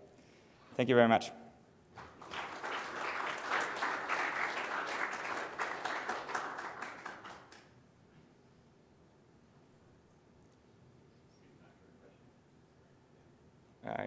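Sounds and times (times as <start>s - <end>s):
audience applauding: 2.0s - 7.7s.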